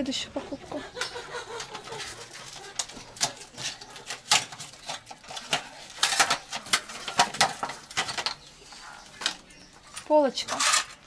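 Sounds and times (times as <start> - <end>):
metallic clicks and clatters: 1.0 - 8.5.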